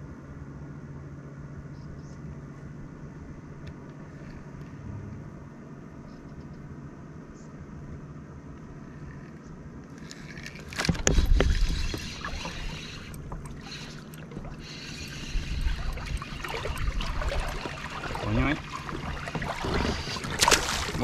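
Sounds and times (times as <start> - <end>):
fish thrashing and splashing: 10.0 - 21.0.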